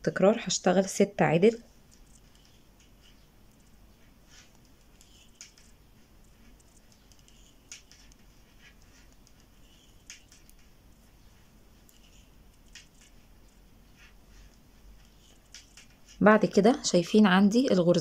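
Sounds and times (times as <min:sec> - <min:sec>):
metal knitting needles clicking: 0:06.4 - 0:10.7, 0:11.8 - 0:13.2.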